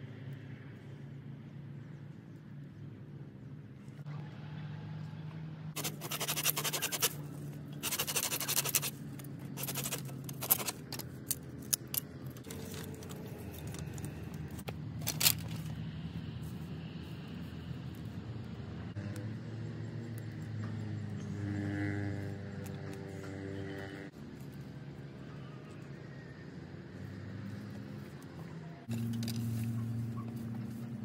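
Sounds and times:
hands scraping through dry soil: 0:05.8 - 0:11.0.

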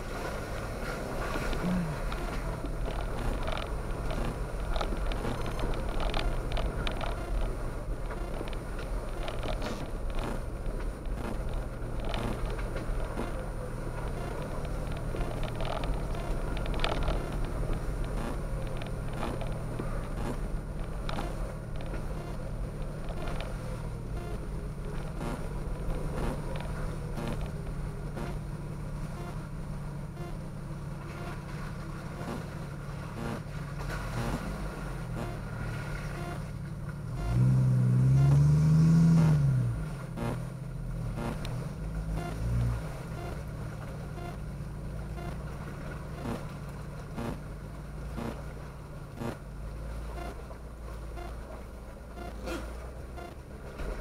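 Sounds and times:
engine revving: 0:00.0 - 0:28.4, 0:29.0 - 0:29.5, 0:30.1 - 0:30.4, 0:31.0 - 0:44.4, 0:45.1 - 0:45.5, 0:46.1 - 0:47.5, 0:48.1 - 0:49.4, 0:52.2 - 0:53.4
engine running low: 0:00.0 - 0:54.0
knocks and clunks: 0:01.2 - 0:28.5.

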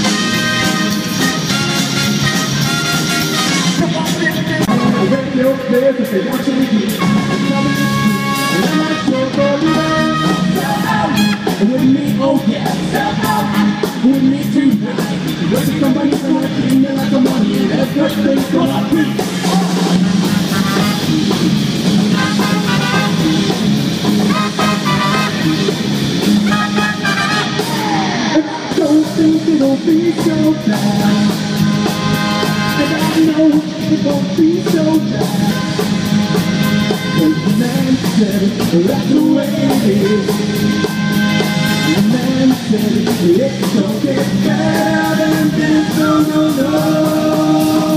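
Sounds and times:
trombone: 0:00.0 - 0:05.6, 0:06.9 - 0:11.9, 0:19.5 - 0:27.7, 0:31.0 - 0:33.6, 0:35.3 - 0:38.4, 0:39.6 - 0:42.6
trumpet: 0:00.0 - 0:05.6, 0:06.9 - 0:11.8, 0:20.1 - 0:23.6, 0:24.2 - 0:28.0, 0:31.6 - 0:33.6, 0:35.3 - 0:38.0, 0:39.7 - 0:42.3
bass guitar: 0:00.0 - 0:47.9
drum kit: 0:00.0 - 0:47.9
electric guitar: 0:00.0 - 0:47.9
lead singer singing: 0:03.8 - 0:20.6, 0:26.4 - 0:36.0, 0:36.8 - 0:47.9.

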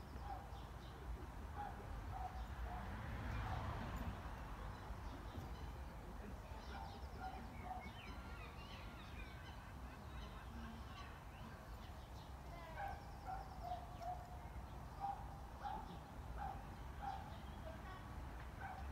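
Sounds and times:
small birds chirping: 0:04.6 - 0:18.9.

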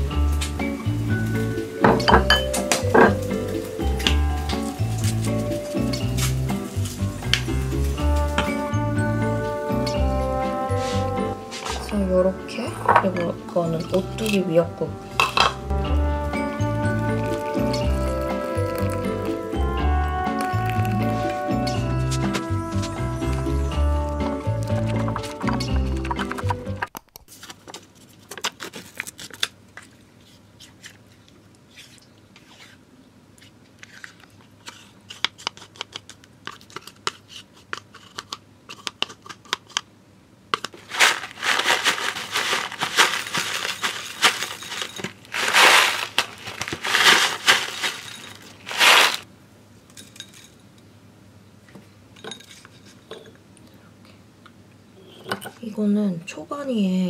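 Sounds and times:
spoon tapping and scraping glass: 0:01.8 - 0:03.2, 0:15.2 - 0:15.6
plastic pouch crinkling: 0:16.4 - 0:21.5, 0:27.0 - 0:30.0, 0:40.7 - 0:49.3
foil lid peeling: 0:16.9 - 0:22.5, 0:24.5 - 0:26.5, 0:40.7 - 0:49.3.

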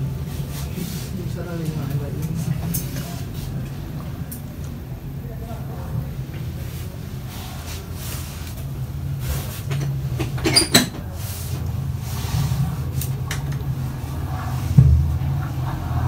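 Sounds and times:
steady low hum: 0:00.0 - 0:16.0
thump: 0:14.8 - 0:15.2.

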